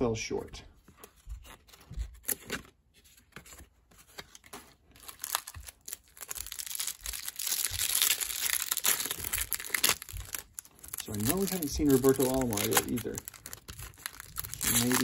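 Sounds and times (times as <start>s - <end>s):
plastic wrapper tearing: 4.2s - 15.0s.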